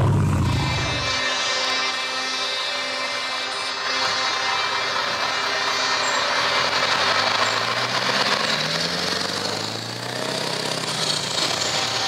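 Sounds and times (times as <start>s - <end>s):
truck engine rumbling past: 0.0s - 1.3s, 6.0s - 12.0s.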